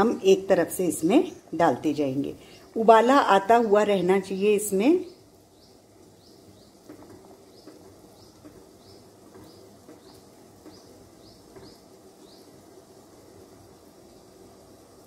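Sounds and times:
syrup boiling and bubbling: 4.7s - 15.0s
bird chirping: 4.8s - 12.6s.

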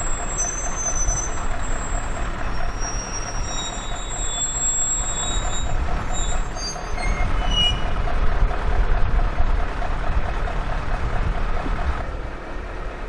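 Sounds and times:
thin high squeal: 0.0s - 8.0s
rail vehicle rumbling: 0.0s - 13.0s.

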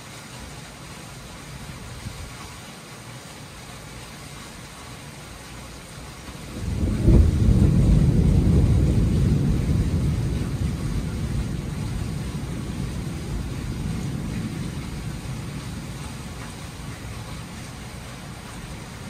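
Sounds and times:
steady rain: 0.0s - 19.0s
thunder rumbling: 6.4s - 19.0s.

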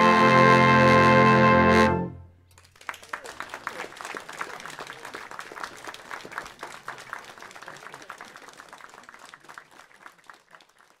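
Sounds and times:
audience clapping: 2.5s - 11.0s.

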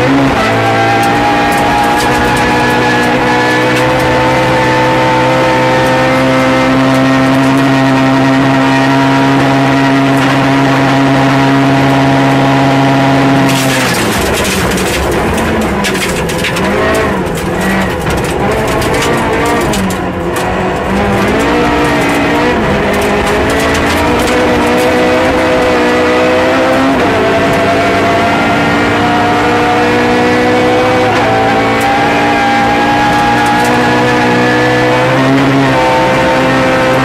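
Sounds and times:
rally car engine revving: 0.0s - 37.0s
clattering: 0.8s - 5.2s, 13.4s - 27.1s.

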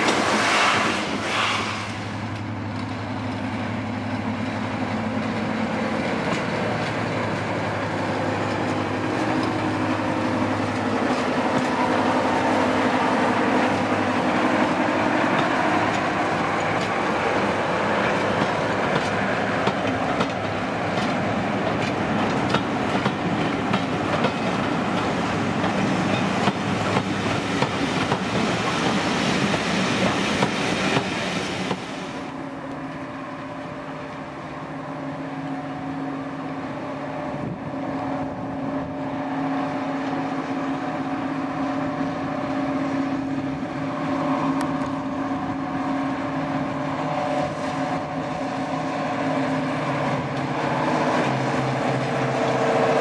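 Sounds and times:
diesel locomotive engine: 0.0s - 53.0s
wheels clicking over rail joints: 18.0s - 31.9s.

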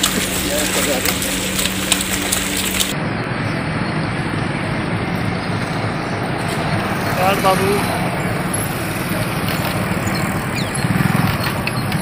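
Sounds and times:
high crackling: 0.0s - 3.0s
dull traffic rumble: 0.0s - 12.0s.

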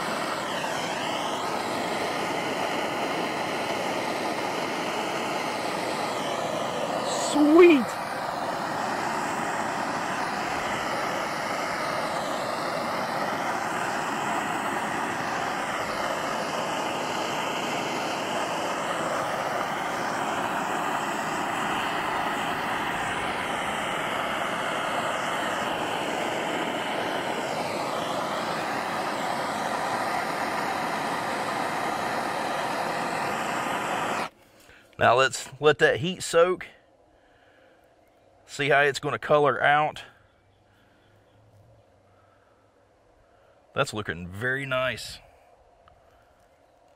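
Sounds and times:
propane torch flame rushing: 0.0s - 35.6s.

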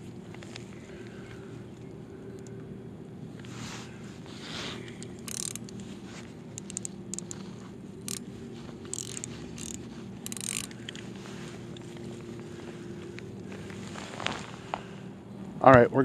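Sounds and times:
steady low hum: 0.0s - 16.0s
spinning reel ratcheting: 5.1s - 5.8s, 6.6s - 7.4s, 8.0s - 8.2s, 8.9s - 11.0s.

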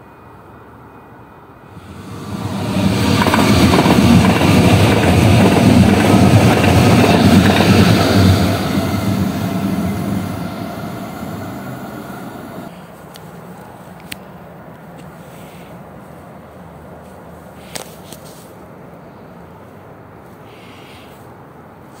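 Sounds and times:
light rail train passing: 0.1s - 14.1s.

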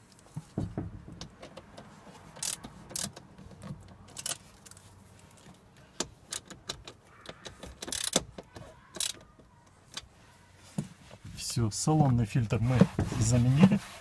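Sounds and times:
socket wrench clicking: 2.4s - 3.3s, 6.0s - 9.4s.

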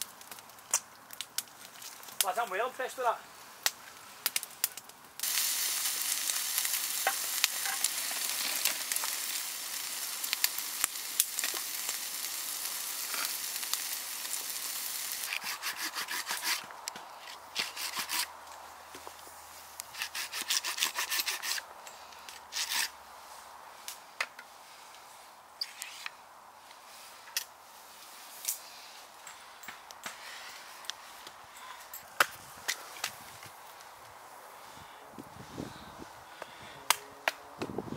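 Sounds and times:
campfire crackling: 0.0s - 37.8s
food sizzling in a pan: 5.2s - 15.3s
hand saw cutting a log: 15.2s - 16.7s, 17.6s - 18.3s, 19.9s - 21.6s, 22.5s - 22.9s.

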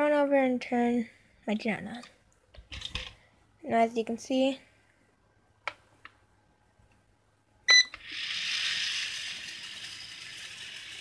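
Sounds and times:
short electronic beep: 7.7s - 8.0s.

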